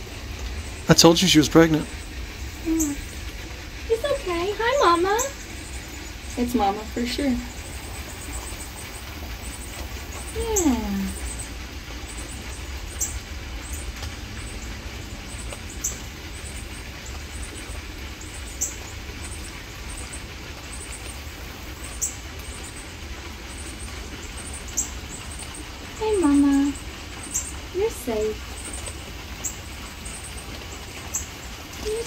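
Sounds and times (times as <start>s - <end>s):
rain falling: 0.0s - 32.0s
bird chirping: 0.6s - 3.2s.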